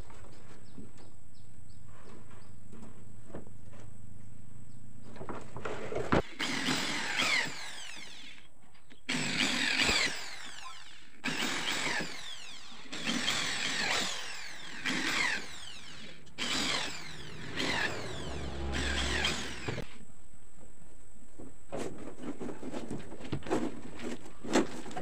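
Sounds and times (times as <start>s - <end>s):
electric drill boring plywood: 6.2s - 8.5s, 9.1s - 20.0s.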